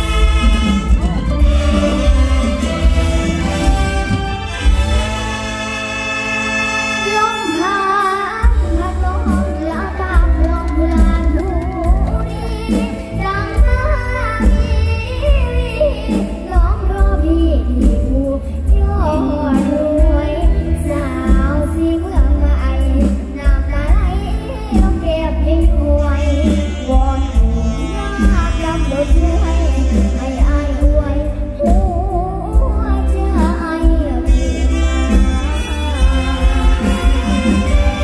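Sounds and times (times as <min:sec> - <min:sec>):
heavy bass line: 0:00.0 - 0:05.9, 0:32.4 - 0:38.0
live band playing: 0:00.0 - 0:38.0
girl singing into microphone: 0:07.0 - 0:36.1.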